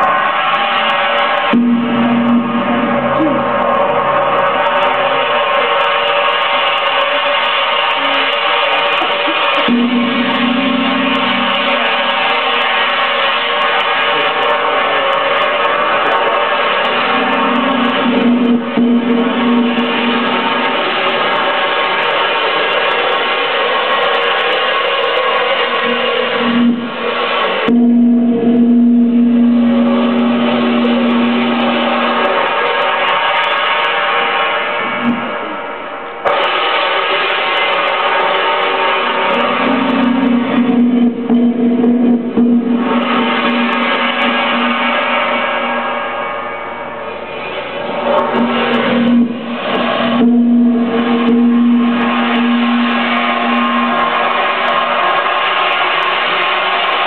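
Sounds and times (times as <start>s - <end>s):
steady low note: 0.0s - 22.0s, 25.2s - 36.4s, 38.7s - 57.0s
noisy electric guitar wash: 0.0s - 57.0s
strong low tone: 1.5s - 4.9s, 9.0s - 12.3s, 17.2s - 20.7s, 25.8s - 32.5s, 39.4s - 47.4s, 48.1s - 54.4s.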